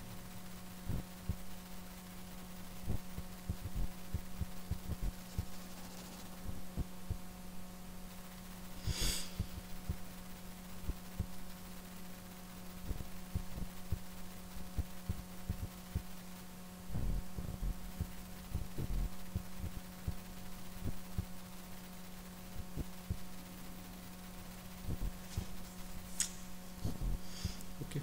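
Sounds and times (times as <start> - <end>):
steady low hum: 0.0 - 28.0
soft low thumps: 0.8 - 1.6, 2.7 - 5.7, 6.4 - 7.4, 9.3 - 10.1, 10.8 - 11.5, 12.8 - 16.2, 16.9 - 21.4, 22.6 - 23.3, 24.8 - 25.7, 26.8 - 27.6
short breathy hiss: 8.7 - 9.7, 27.2 - 27.7.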